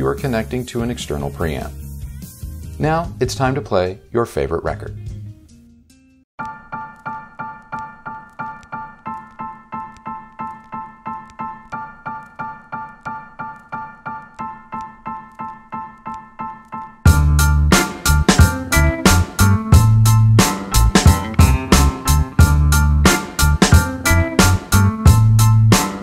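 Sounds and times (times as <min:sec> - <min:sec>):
piano repeating a chord: 0:06.4 - 0:26.0
loud music with a heavy beat: 0:17.1 - 0:26.0.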